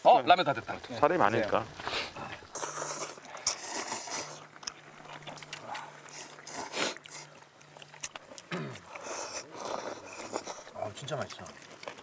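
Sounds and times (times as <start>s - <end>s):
faint low hum: 1.6s - 12.0s
people slurping noodles: 1.7s - 12.0s.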